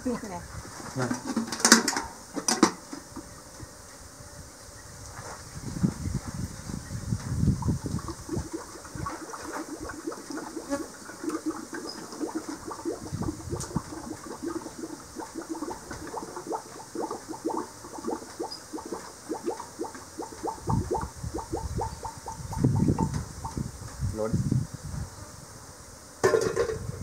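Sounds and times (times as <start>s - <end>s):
honey pouring with liquid pops: 7.6s - 23.6s.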